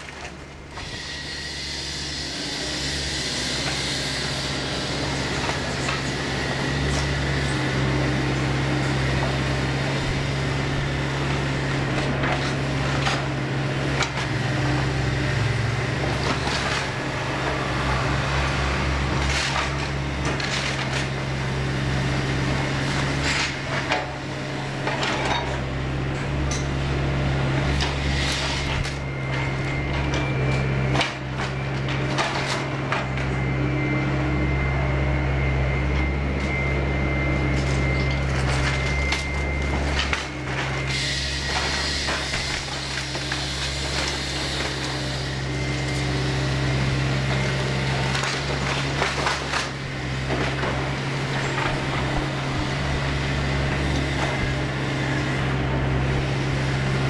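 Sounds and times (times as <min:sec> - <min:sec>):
excavator diesel engine running: 0:00.0 - 0:57.0
timber cracking and crashing: 0:48.0 - 0:50.8.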